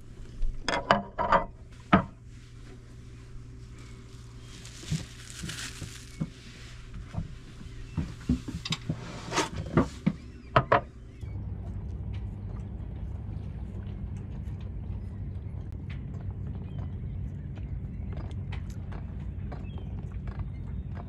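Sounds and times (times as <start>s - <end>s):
boat motor rumble: 0.0s - 21.0s.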